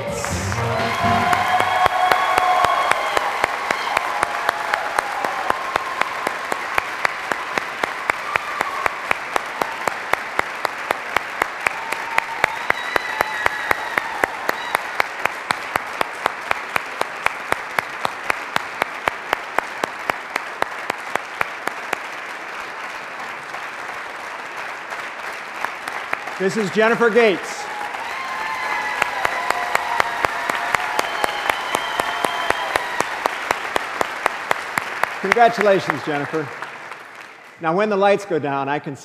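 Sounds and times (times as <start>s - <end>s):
steady clap beat: 0.0s - 26.4s
audience applauding: 0.0s - 38.1s.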